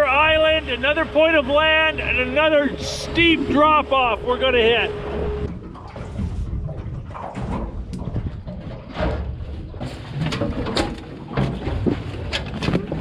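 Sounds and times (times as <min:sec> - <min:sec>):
steady low rumble: 0:00.0 - 0:09.9.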